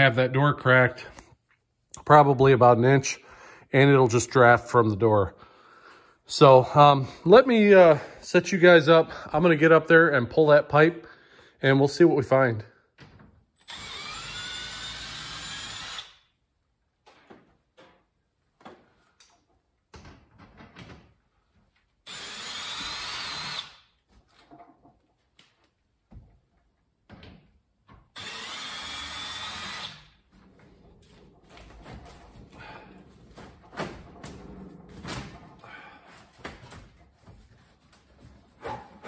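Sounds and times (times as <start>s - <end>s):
cordless drill spinning: 13.6s - 16.2s, 22.0s - 23.8s, 28.2s - 31.6s.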